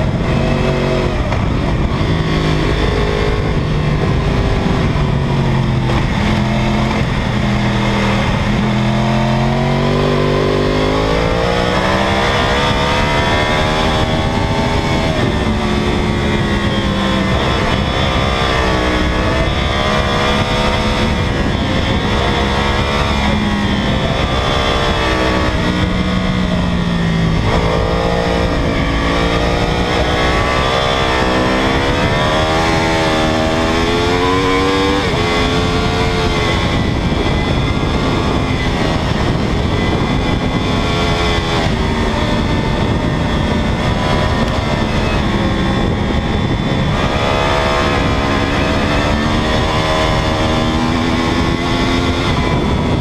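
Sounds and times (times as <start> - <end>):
motorcycle engine revving: 0.0 - 53.0
wind rushing: 0.0 - 53.0.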